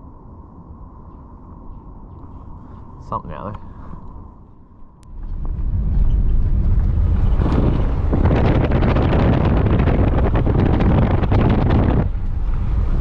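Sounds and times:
car cabin low rumble: 0:04.8 - 0:13.0
gravel and stones crackling: 0:05.0 - 0:13.0.

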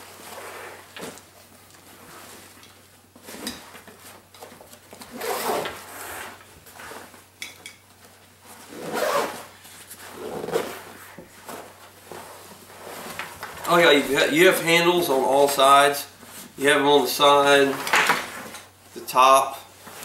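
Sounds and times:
fabric rustling and rubbing: 0:00.0 - 0:07.4, 0:08.0 - 0:14.1.

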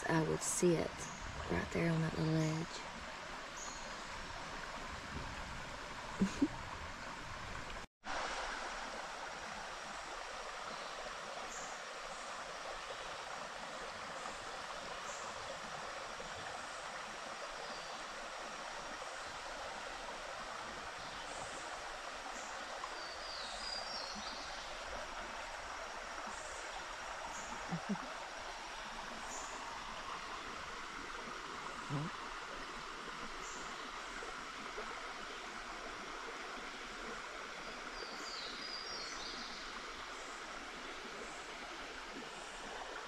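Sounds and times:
stream flowing: 0:00.0 - 0:43.0
faint bird chirps: 0:27.3 - 0:28.1.

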